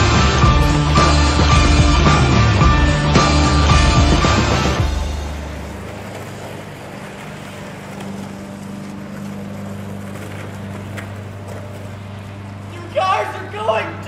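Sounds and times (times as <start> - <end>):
rock music: 0.0 - 5.7.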